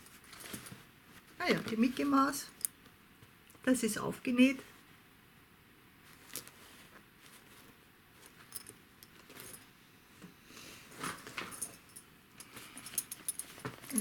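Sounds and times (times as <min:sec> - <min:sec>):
cloth rustling: 0:00.0 - 0:02.4, 0:06.0 - 0:09.7
light clicks and clinks: 0:11.5 - 0:14.0.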